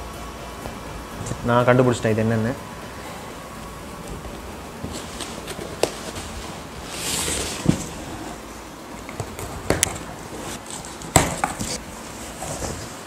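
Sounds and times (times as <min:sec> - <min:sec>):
cardboard rustling scrape: 0:04.8 - 0:08.5, 0:09.3 - 0:13.0
cardboard box knocks and bumps: 0:07.2 - 0:08.1, 0:11.0 - 0:13.0.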